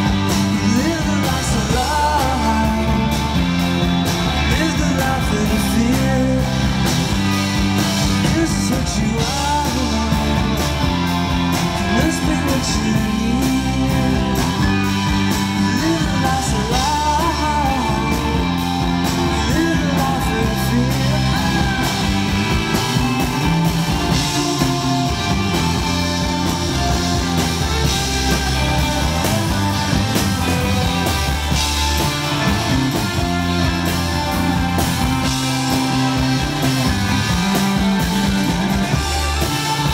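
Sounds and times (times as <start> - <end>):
bass guitar: 0.0 - 39.9
drum kit with cymbals: 0.0 - 39.9
electric guitars: 0.0 - 39.9
person singing: 0.4 - 3.5, 4.4 - 6.9, 8.1 - 10.7, 11.8 - 14.6, 15.4 - 22.5.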